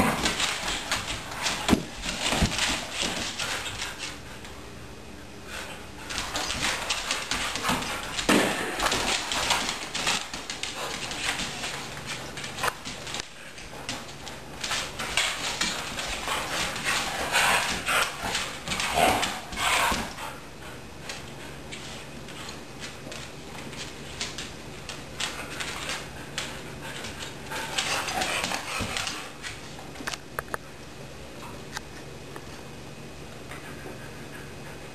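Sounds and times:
dogs scuffling: 0.0s - 4.6s, 5.5s - 20.4s, 21.0s - 30.2s
dogs play-growling: 15.0s - 20.3s, 27.1s - 29.4s.

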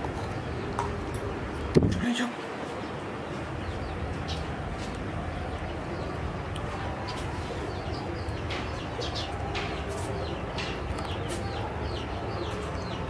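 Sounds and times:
chicks peeping: 3.4s - 13.0s.

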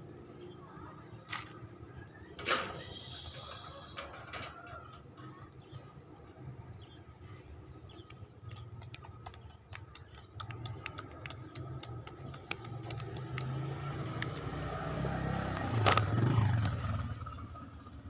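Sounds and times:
small clicks and taps: 8.0s - 14.5s.

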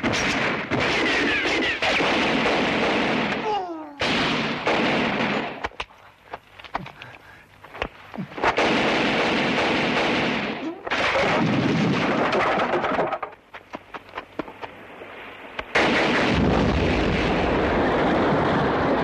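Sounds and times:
single gunshots: 0.0s - 3.4s, 4.0s - 5.8s, 8.4s - 13.2s, 15.6s - 17.8s
continuous gunfire: 0.0s - 5.8s, 8.3s - 14.7s, 15.6s - 19.0s.

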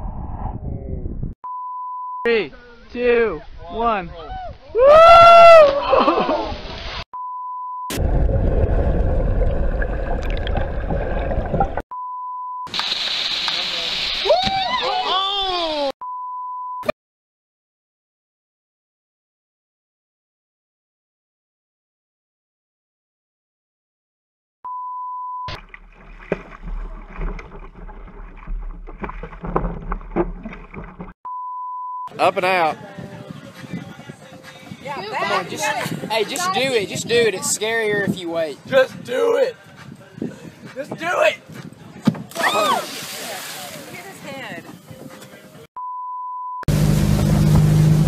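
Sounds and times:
underwater rumbling and bubbling: 0.0s - 1.4s, 7.9s - 11.8s, 25.5s - 31.2s
wind rushing over microphone: 0.0s - 1.4s, 32.6s - 45.6s
water splash: 7.9s - 11.8s, 12.7s - 14.7s, 25.5s - 31.2s, 42.3s - 44.2s.

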